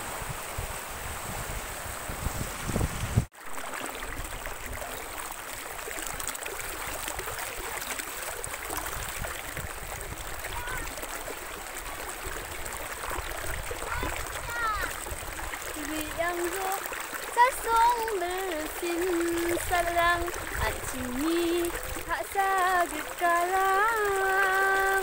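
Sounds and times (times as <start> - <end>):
wind buffeting microphone: 0.0 - 3.3, 8.4 - 16.3, 19.3 - 22.2
floodwater rushing: 0.0 - 25.0.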